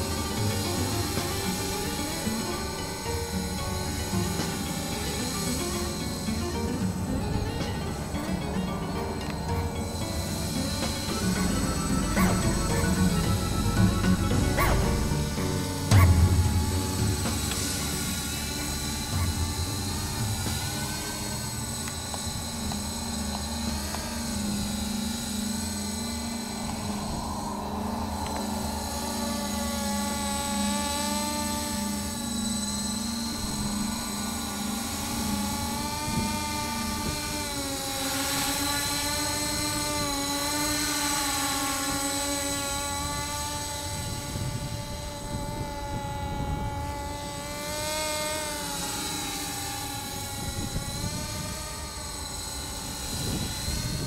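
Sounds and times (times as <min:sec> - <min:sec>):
drone propellers buzzing: 0:00.0 - 0:54.0
steady low hum: 0:00.0 - 0:54.0.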